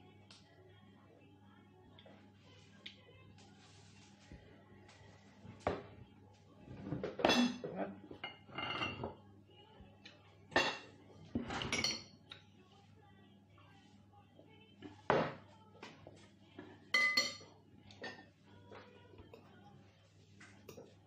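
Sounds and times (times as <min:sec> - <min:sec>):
plates and cutlery clinking: 0:06.7 - 0:09.2, 0:10.5 - 0:12.2, 0:16.9 - 0:18.3.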